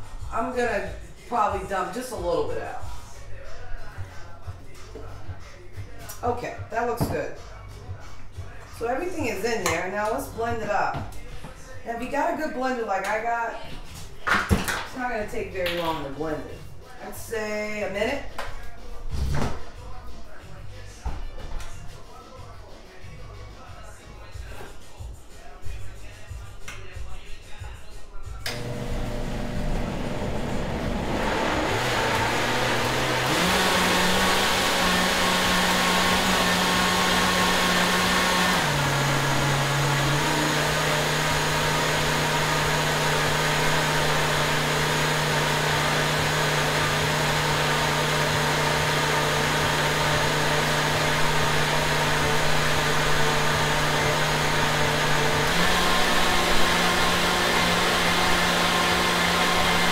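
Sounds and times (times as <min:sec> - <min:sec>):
blender motor running: 0:28.5 - 0:59.9.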